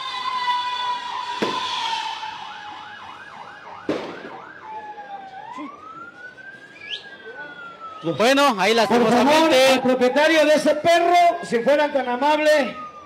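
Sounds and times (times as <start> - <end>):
emergency vehicle siren: 0.0 - 13.0
sharp bang: 1.4 - 2.0.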